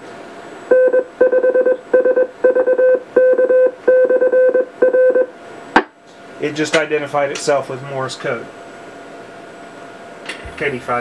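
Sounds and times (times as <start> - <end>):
morse code beeps: 0.7 - 5.3.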